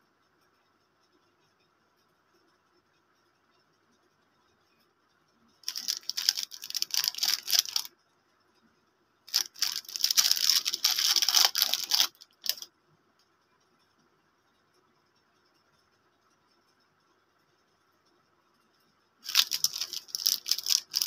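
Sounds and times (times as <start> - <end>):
plastic wrapper crinkling: 5.6 - 7.9, 9.3 - 12.7, 19.2 - 21.0.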